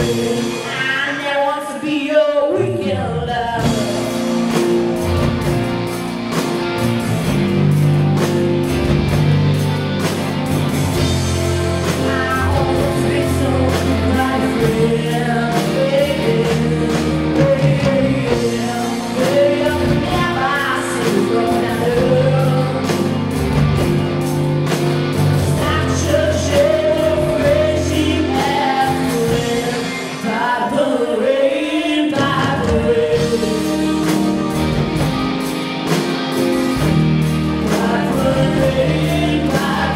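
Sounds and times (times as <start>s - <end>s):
women singing: 0.0s - 4.2s, 11.7s - 23.4s, 25.4s - 34.3s, 37.6s - 39.9s
drums: 0.0s - 39.9s
electric guitars: 0.0s - 39.9s.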